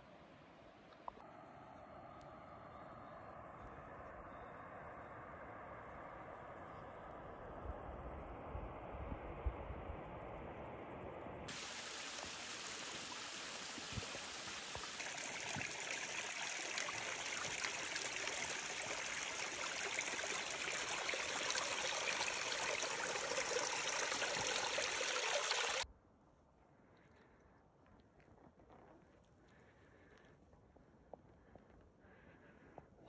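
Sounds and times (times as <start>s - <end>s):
stream trickling over rocks: 11.5s - 25.8s.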